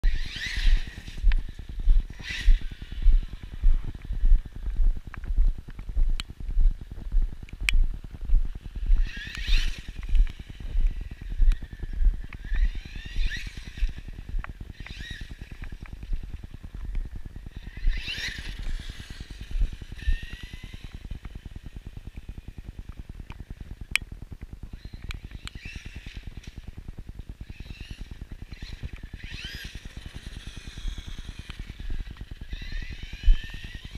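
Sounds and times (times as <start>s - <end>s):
rc truck electric motor whining: 0.0s - 4.0s, 8.7s - 16.7s, 17.4s - 23.1s, 24.7s - 26.8s, 27.4s - 33.9s
footsteps walking: 0.7s - 9.1s, 10.0s - 12.5s.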